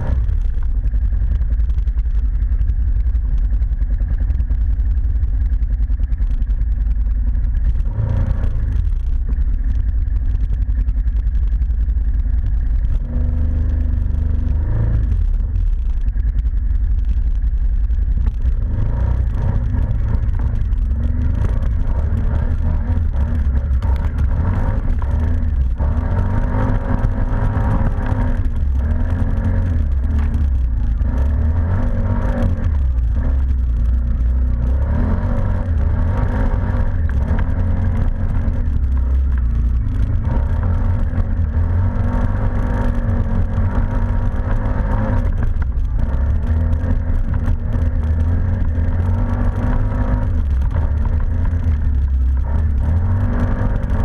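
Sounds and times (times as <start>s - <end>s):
quad bike engine revving: 0.0s - 0.4s, 18.6s - 54.0s.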